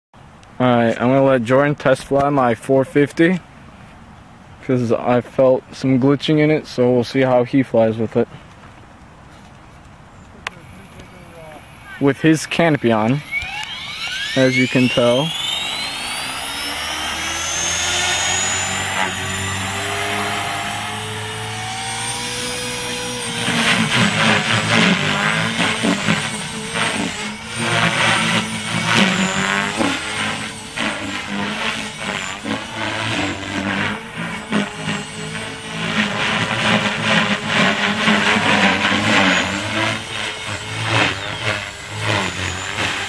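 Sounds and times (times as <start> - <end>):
rc helicopter rotor noise: 10.4 - 43.0.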